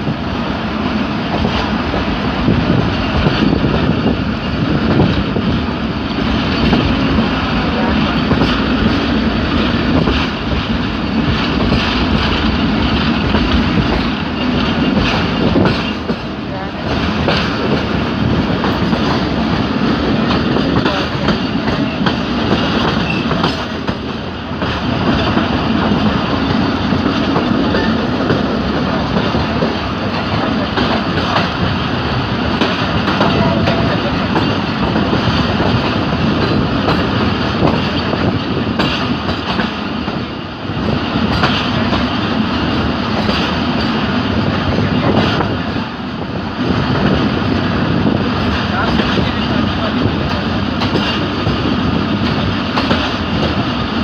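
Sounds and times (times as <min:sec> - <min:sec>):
train wheels rumbling on rails: 0:00.0 - 0:54.0
wheels clicking over rail joints: 0:41.2 - 0:45.8, 0:48.4 - 0:53.7.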